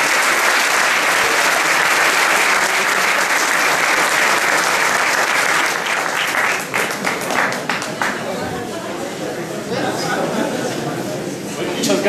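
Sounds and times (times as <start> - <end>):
audience applause: 0.0 - 8.5.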